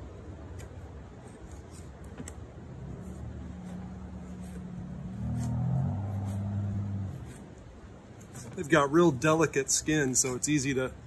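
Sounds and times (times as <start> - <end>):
low engine hum: 0.0 - 9.0.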